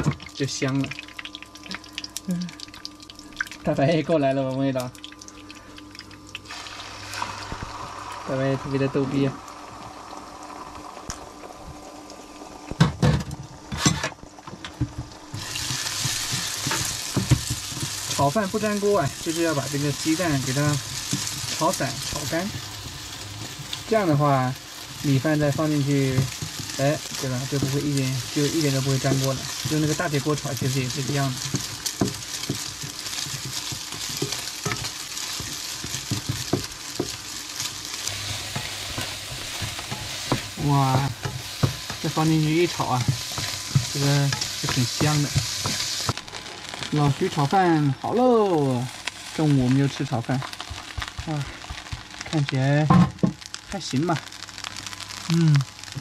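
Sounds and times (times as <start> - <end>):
eggs sizzling in a frying pan: 0.0 - 56.0
spatula scraping and tapping pan: 14.7 - 19.8, 28.4 - 46.2.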